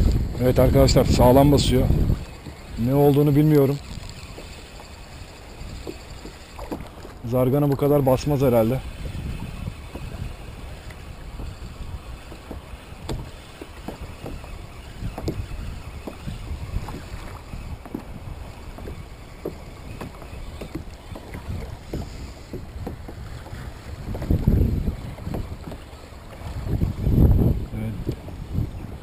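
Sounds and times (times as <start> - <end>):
water lapping against kayak hull: 0.0 - 29.0
wind rumbling on microphone: 0.0 - 29.0
small knocks on hull: 5.7 - 7.9, 12.2 - 27.4.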